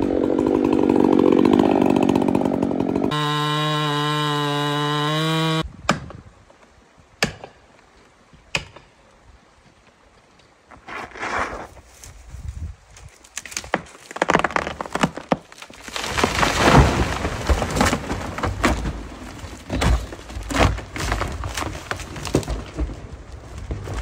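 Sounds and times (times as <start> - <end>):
wood cracking and splintering: 0.0 - 5.6, 13.0 - 24.0
tree trunk crashing down: 13.4 - 24.0
thuds of breaking wood: 13.5 - 24.0.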